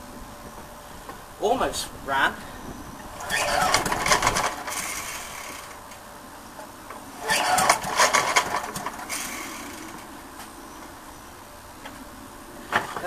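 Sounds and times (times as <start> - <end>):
lawnmower engine sputtering: 2.9 - 10.5.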